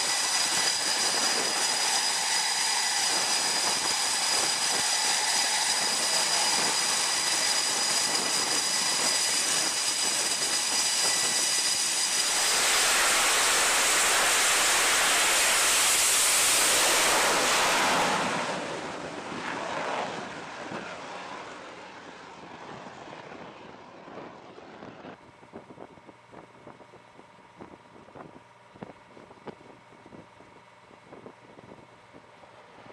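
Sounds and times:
jet launching roar: 0.0s - 20.9s
jet engines whining: 0.0s - 25.1s.

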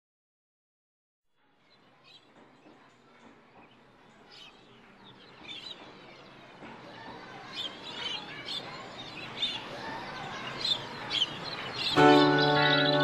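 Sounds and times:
noisy outdoor background: 1.3s - 13.0s
birds chirping: 1.6s - 13.0s.

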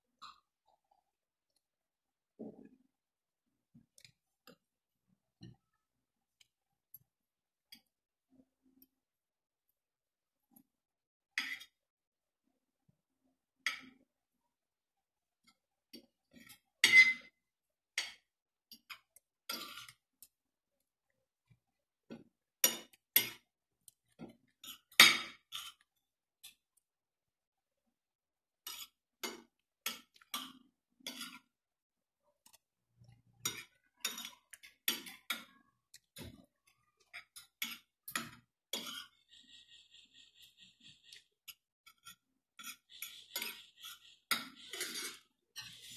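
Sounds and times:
cutlery clinking on a plate: 16.5s - 17.4s.

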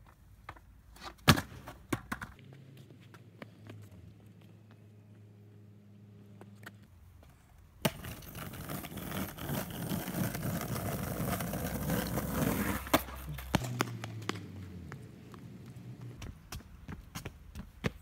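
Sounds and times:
skateboard wheels rolling on paving: 0.0s - 18.0s
skateboard clack: 0.5s - 2.6s, 7.8s - 18.0s.

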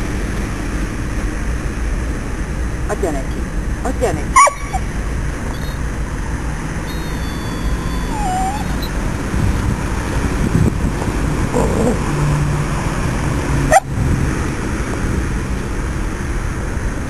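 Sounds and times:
road traffic rumble: 0.0s - 17.0s
dog whining: 4.4s - 4.9s, 6.9s - 9.0s, 11.5s - 12.0s
dog yelping: 4.4s - 5.0s, 6.9s - 9.0s, 11.6s - 12.0s.

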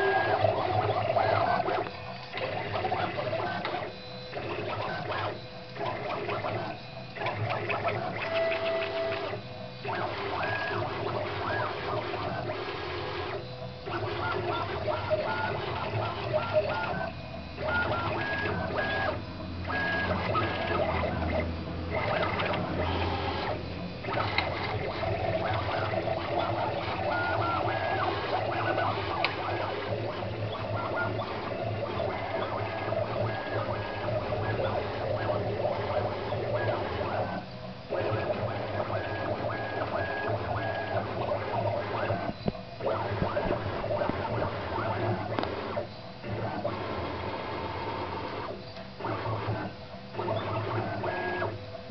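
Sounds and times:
stepper motors whining: 0.0s - 47.1s.

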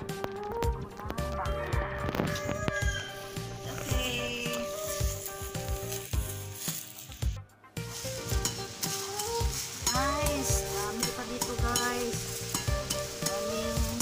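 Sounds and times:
background music with held notes: 0.0s - 14.0s
machete cutting grass and leaves: 4.5s - 13.8s.

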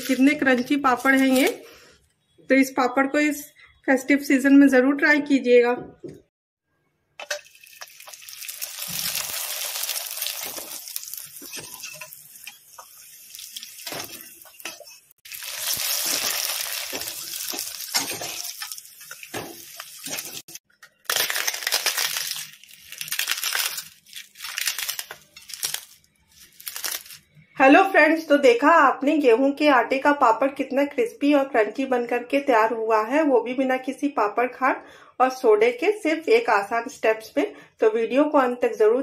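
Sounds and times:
papad sizzling in hot oil: 7.2s - 20.6s.

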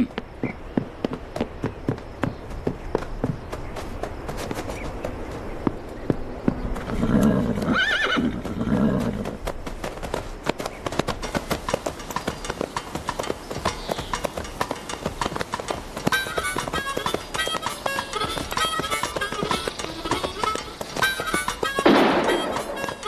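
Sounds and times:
galloping hooves: 0.0s - 23.0s
horse whinnying: 6.9s - 9.4s.

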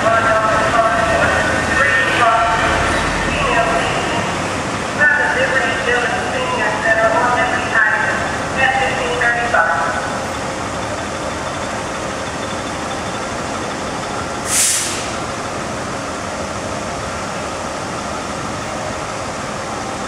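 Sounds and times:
air brake hiss: 14.4s - 15.3s.

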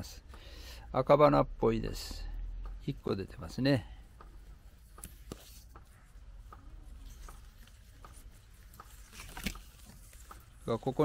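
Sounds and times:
leaves brushing: 6.8s - 11.0s.

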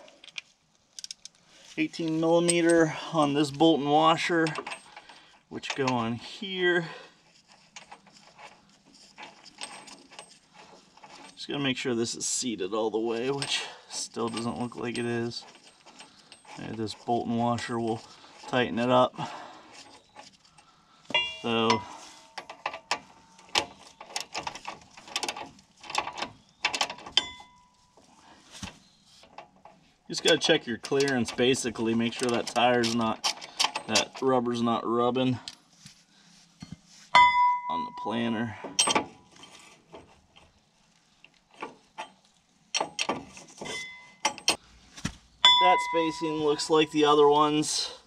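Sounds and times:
metallic ring: 21.1s - 23.6s, 27.1s - 28.0s, 36.6s - 39.6s, 43.6s - 44.6s, 45.4s - 47.0s
metal wrench clicking on bolt: 32.1s - 34.2s.

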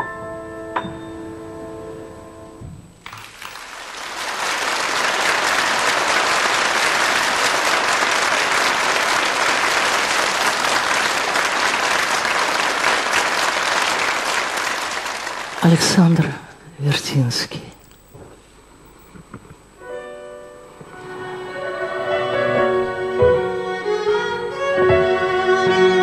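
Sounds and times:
piano chord ringing: 0.0s - 2.8s
audience applause: 3.0s - 16.3s.

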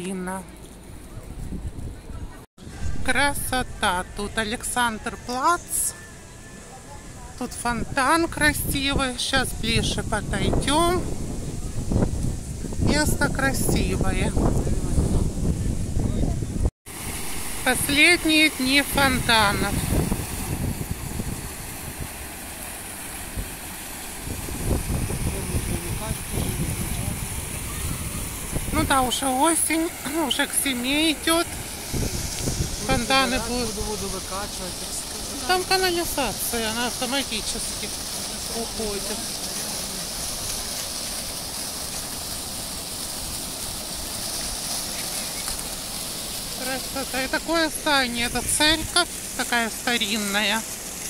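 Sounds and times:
fountain water splashing: 2.7s - 15.8s, 16.9s - 51.0s
water spilling over cascades: 16.9s - 51.0s.

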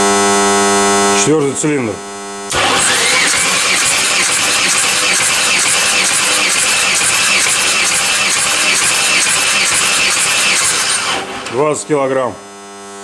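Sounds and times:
engine cranking on starter: 2.5s - 12.0s.

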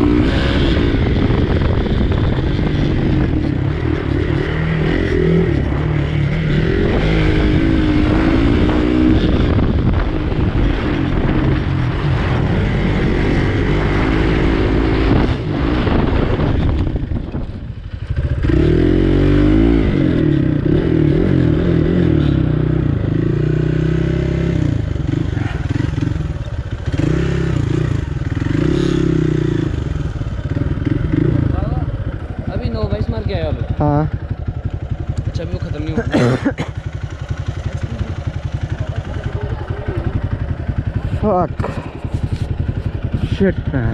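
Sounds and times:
dirt bike engine revving: 0.0s - 43.9s.

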